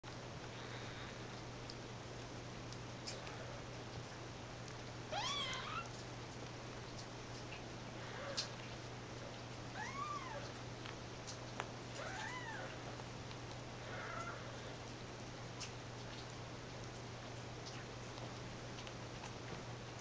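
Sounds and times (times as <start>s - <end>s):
steady low hum: 0.1s - 20.0s
kittens mewing: 5.1s - 6.0s, 8.0s - 8.7s, 9.7s - 10.6s, 11.9s - 13.0s, 13.8s - 14.8s.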